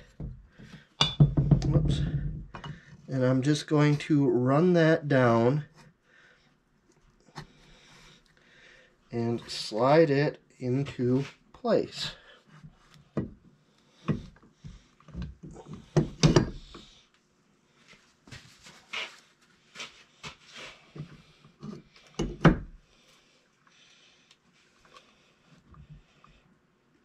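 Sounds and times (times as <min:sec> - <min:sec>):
metal knocks and clunks: 0:01.0 - 0:02.8, 0:15.2 - 0:16.8.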